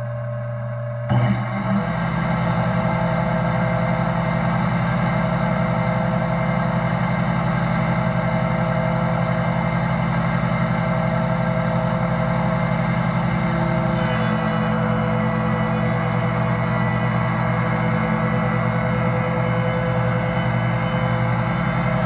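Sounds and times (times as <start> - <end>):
shaper motor humming: 13.6 - 22.0.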